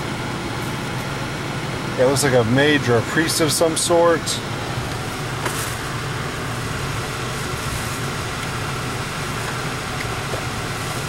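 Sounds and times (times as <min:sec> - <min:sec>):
car engine idling: 0:00.0 - 0:11.0
ventilation fan blowing: 0:00.0 - 0:11.0.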